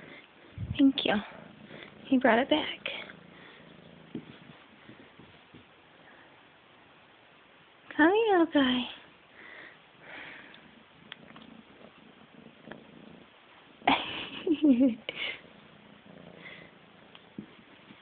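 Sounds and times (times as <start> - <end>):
rustling and handling noise: 0.0 - 6.0, 17.1 - 18.0.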